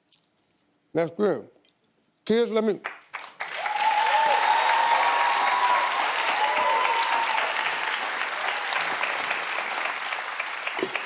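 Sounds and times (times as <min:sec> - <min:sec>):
audience applauding: 0:02.8 - 0:11.0
voices cheering: 0:03.5 - 0:10.0.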